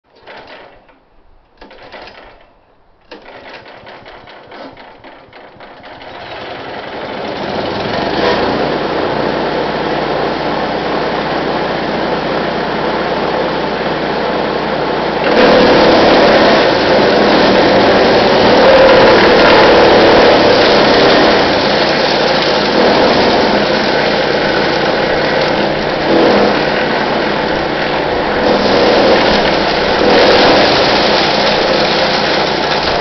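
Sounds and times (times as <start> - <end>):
pull-start cord pulls: 0.1 - 8.6, 15.2 - 33.0
wood chipper engine running: 3.1 - 33.0.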